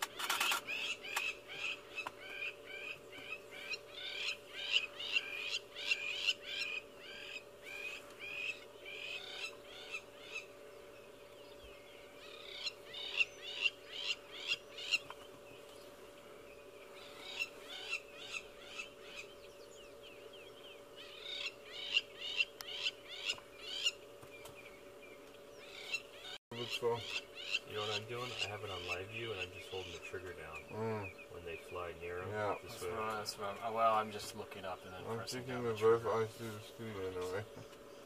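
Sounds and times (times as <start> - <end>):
lapwings alarm calls: 0.0 - 10.5, 12.2 - 15.2, 17.0 - 19.5, 21.0 - 24.0, 25.6 - 30.2.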